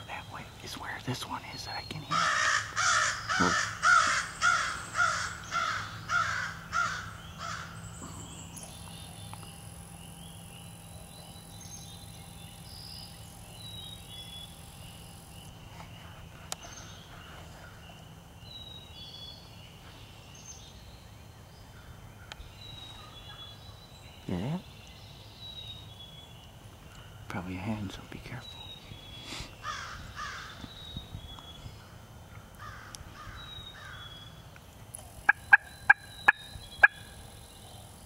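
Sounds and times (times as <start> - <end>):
crow cawing: 2.1 - 7.8, 29.6 - 30.6, 32.6 - 34.0.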